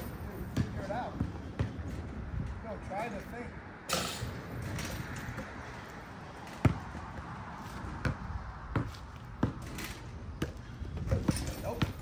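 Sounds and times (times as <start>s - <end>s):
basketball bouncing on hard court: 0.5s - 2.0s, 6.6s - 7.1s, 7.9s - 9.7s, 10.3s - 12.0s.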